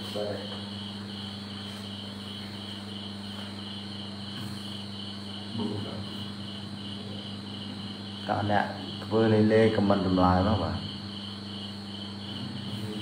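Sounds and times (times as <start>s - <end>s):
insect chirping: 0.0s - 13.0s
low electrical hum: 0.0s - 13.0s.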